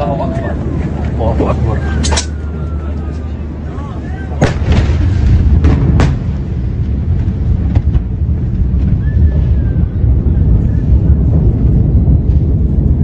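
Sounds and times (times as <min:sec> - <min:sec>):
heavy low rumble: 0:00.0 - 0:13.0
explosion boom: 0:04.4 - 0:13.0.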